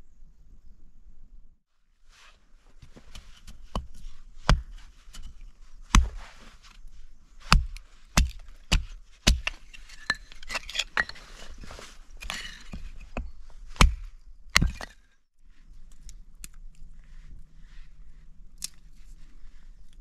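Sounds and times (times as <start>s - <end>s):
hatchet chopping wood: 3.0s - 6.3s, 7.4s - 10.6s, 12.2s - 15.0s
wood pieces clattering: 9.4s - 13.2s.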